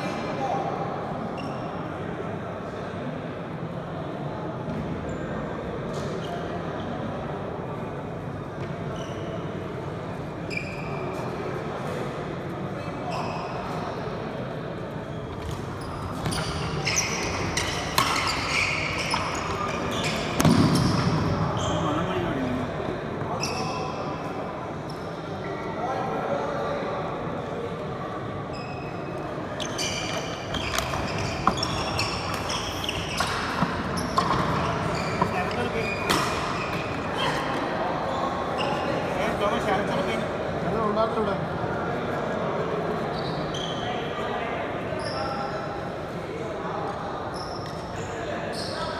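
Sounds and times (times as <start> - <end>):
sports shoes squeaking on court: 1.3 - 1.8, 8.8 - 9.6, 10.4 - 11.3, 15.0 - 22.4, 23.2 - 25.2, 28.5 - 39.9, 43.0 - 44.1, 45.0 - 45.6, 47.3 - 48.9
rackets hitting shuttlecock: 17.6 - 18.5, 20.2 - 21.2, 32.2 - 34.6, 35.2 - 37.0.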